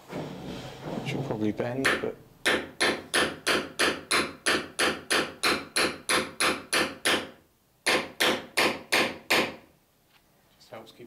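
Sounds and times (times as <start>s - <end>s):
hammer tapping nail: 1.8s - 9.6s.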